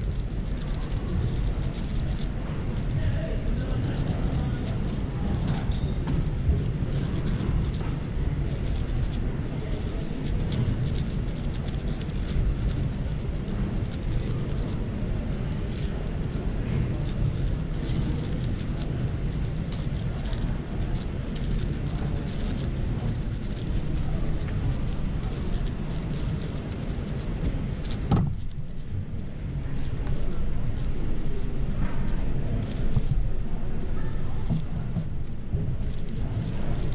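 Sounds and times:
plastic clicking of puzzle cube turning: 0:00.0 - 0:07.8, 0:08.4 - 0:28.8
faint chatter: 0:00.0 - 0:36.9
low rumble of large hall: 0:00.0 - 0:36.9.

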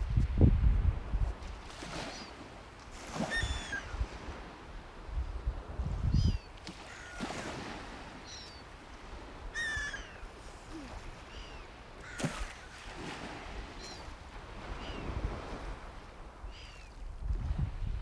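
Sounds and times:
wind rumble on microphone: 0:00.0 - 0:01.8, 0:03.3 - 0:06.6, 0:13.2 - 0:18.0.

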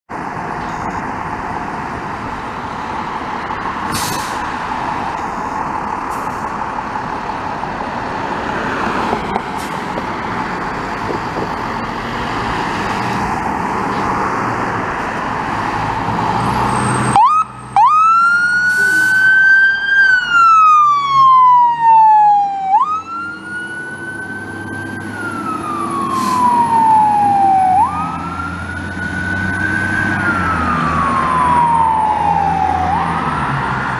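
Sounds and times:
truck engine: 0:00.1 - 0:33.9
fire engine siren wailing: 0:14.7 - 0:33.9.

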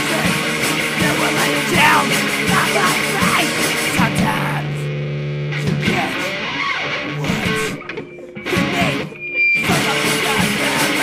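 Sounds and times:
distorted electric guitar: 0:00.0 - 0:11.0
drums and cymbals: 0:08.5 - 0:11.0.

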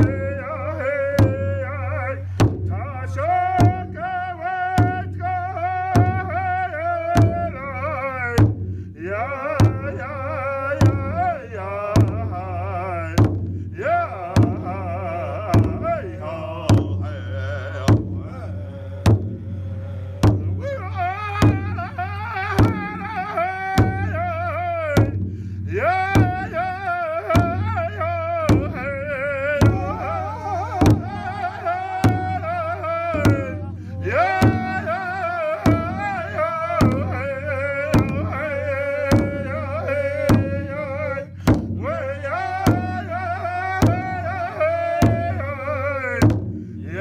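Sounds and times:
steady drum beat: 0:00.0 - 0:47.0
high wavering voice singing: 0:13.9 - 0:25.0, 0:25.7 - 0:41.2.

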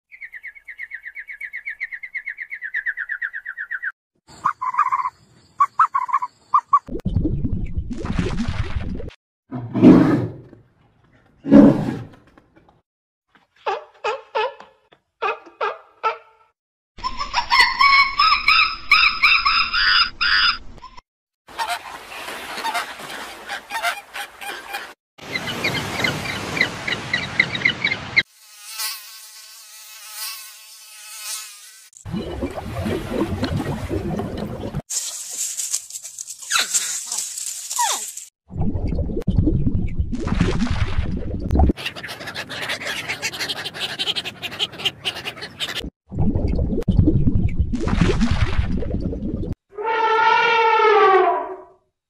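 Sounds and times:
loud repeated bird calls: 0:00.1 - 0:06.8
animal chirping trill: 0:00.1 - 0:06.9
short lower-pitched animal calls: 0:49.8 - 0:51.7.

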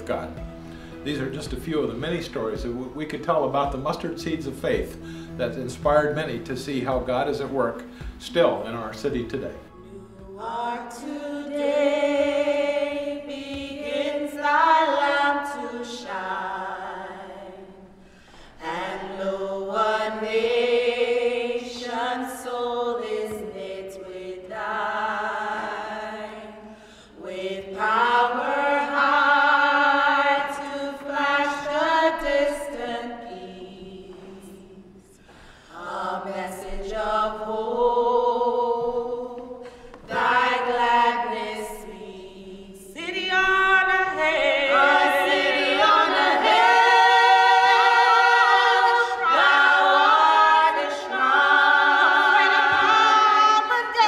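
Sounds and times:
vocal group singing a cappella: 0:00.0 - 0:54.0.

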